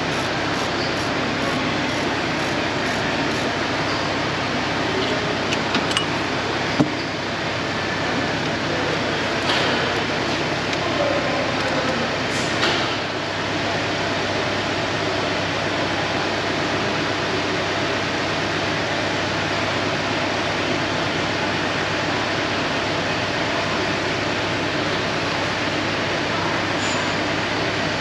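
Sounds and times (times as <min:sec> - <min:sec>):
workshop rushing noise: 0:00.0 - 0:07.0.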